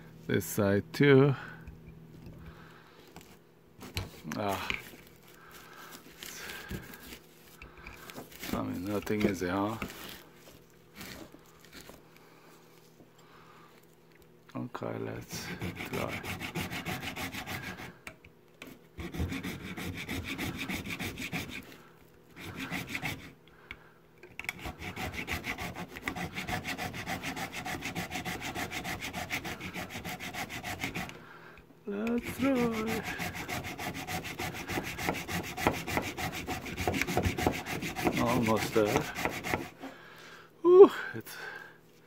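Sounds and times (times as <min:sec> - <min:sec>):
hand saw cutting hard plastic: 0:15.3 - 0:18.0, 0:19.0 - 0:21.7, 0:22.4 - 0:23.3, 0:24.5 - 0:31.2, 0:32.2 - 0:39.9.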